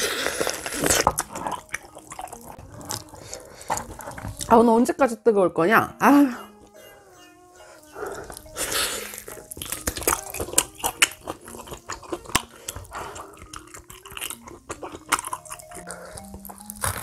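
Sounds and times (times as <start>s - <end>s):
sticky wet clicks and crackles: 9.4s - 17.0s.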